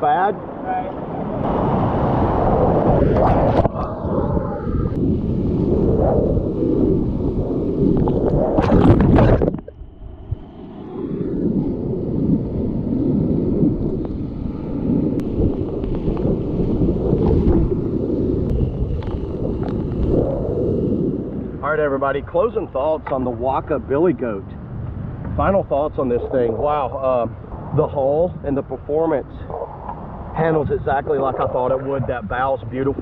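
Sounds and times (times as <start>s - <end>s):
water splashing on microphone: 7.5s - 9.9s, 25.2s - 33.0s.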